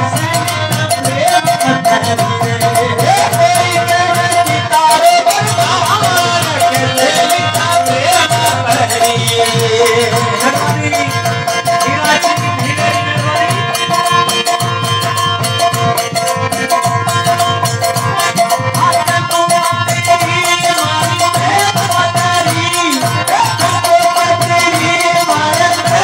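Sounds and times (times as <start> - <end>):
hand percussion beat: 0.0 - 26.0
harmonium holding notes: 0.0 - 26.0
man singing: 0.0 - 26.0.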